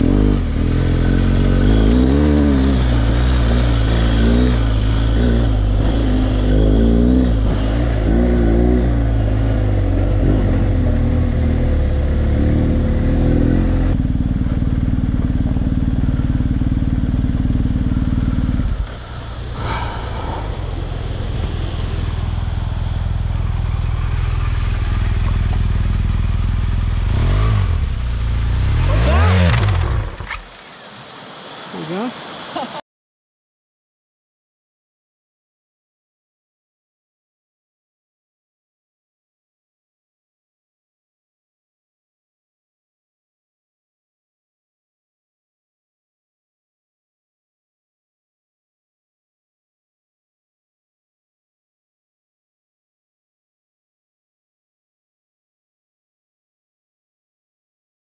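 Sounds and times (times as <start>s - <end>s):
creek rushing: 0.0s - 10.8s, 18.7s - 32.8s
motorcycle engine running: 0.0s - 30.4s
motorcycle engine revving: 0.0s - 30.6s.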